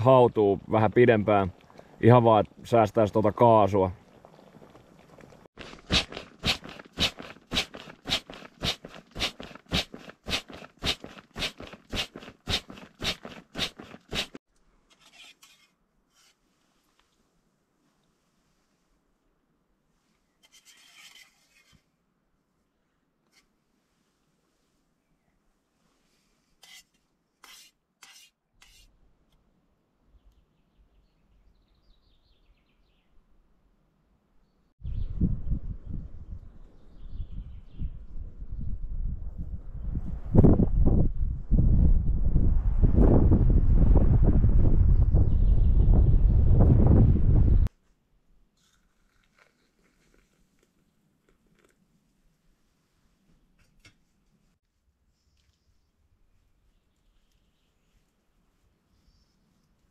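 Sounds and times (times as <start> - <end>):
faint outdoor noise: 0.0 - 38.5, 47.6 - 59.9
crunching footsteps: 4.1 - 14.4, 48.6 - 51.8
utensil scraping metal pot: 26.6 - 28.9
small bird singing: 30.1 - 33.2, 34.4 - 38.7.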